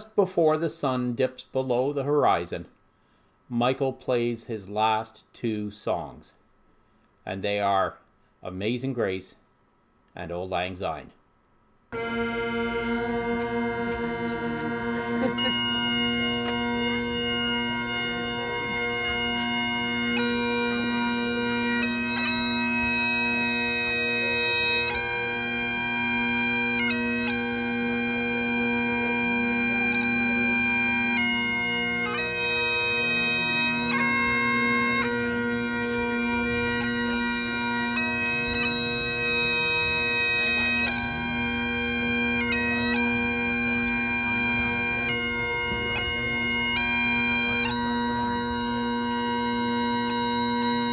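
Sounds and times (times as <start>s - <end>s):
bagpipe drones: 11.9s - 50.9s
bagpipe melody: 11.9s - 50.9s.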